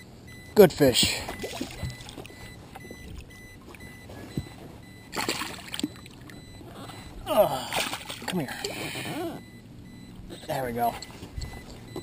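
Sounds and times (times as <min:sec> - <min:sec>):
water sloshing: 0:00.3 - 0:08.8
fish splashing at water surface: 0:01.3 - 0:02.3, 0:05.1 - 0:06.3, 0:07.7 - 0:08.3.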